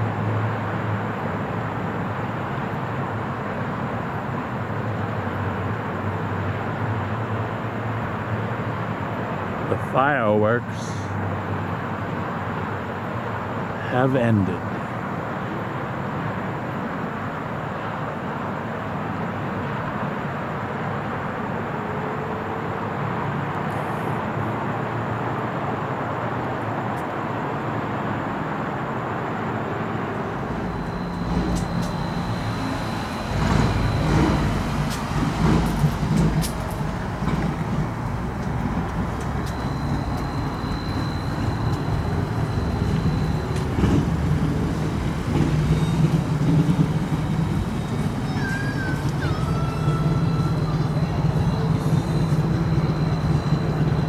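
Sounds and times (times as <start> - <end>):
cars passing on street: 0.0 - 54.0
distant traffic hum: 0.0 - 54.0
thin high steady tone: 29.2 - 54.0.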